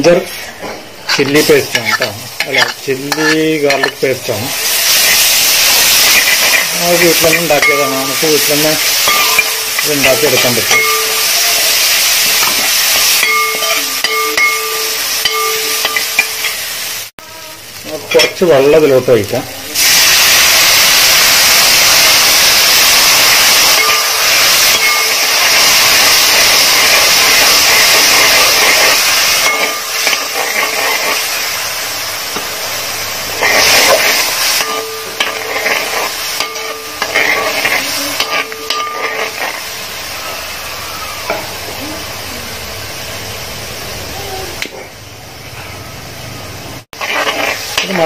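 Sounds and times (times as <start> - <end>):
spatula scraping pan: 0.0 - 4.2, 26.8 - 31.3, 33.4 - 39.6, 47.0 - 48.0
loud sizzling hiss: 0.0 - 48.0.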